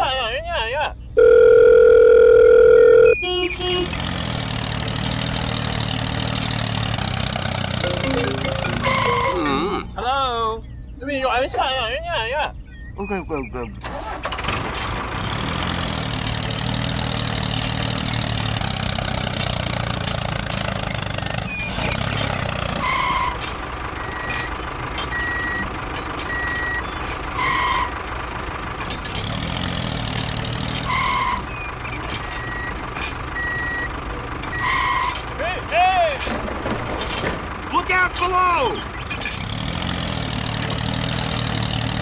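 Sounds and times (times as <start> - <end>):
vehicle engine running: 1.0 - 10.0, 12.6 - 42.0
reversing alarm beeping: 1.2 - 3.3, 25.1 - 25.7, 32.3 - 32.8, 33.4 - 33.9.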